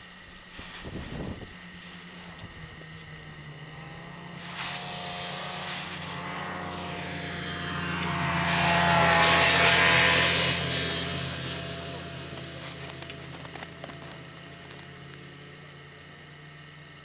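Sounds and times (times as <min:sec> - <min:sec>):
low engine drone: 0:00.0 - 0:17.0
sliding over snow hiss: 0:00.4 - 0:02.5, 0:04.3 - 0:07.3, 0:09.2 - 0:14.9.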